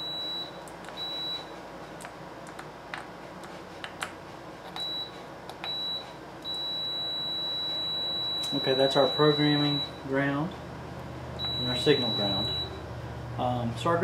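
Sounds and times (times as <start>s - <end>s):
multimeter beeping: 0.0s - 1.5s, 4.8s - 10.0s, 11.4s - 12.8s.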